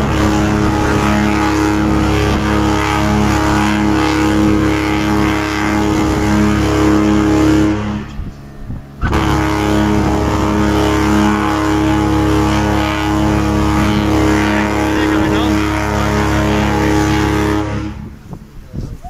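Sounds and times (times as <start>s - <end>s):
ship horns blasting: 0.0s - 18.6s.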